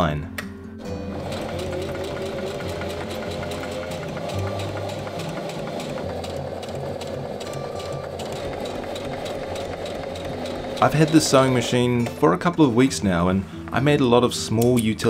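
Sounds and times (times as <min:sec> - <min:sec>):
sewing machine stitching: 0:01.1 - 0:12.5.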